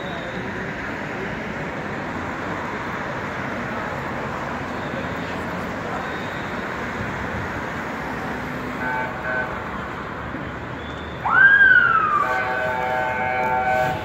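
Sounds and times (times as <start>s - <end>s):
passing cars: 0.0s - 14.0s
car horn toots: 8.7s - 9.7s, 12.0s - 14.0s.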